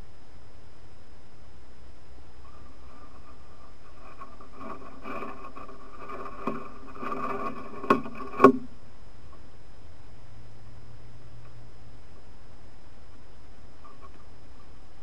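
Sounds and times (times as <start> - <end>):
bear scraping against camera: 2.9 - 8.6.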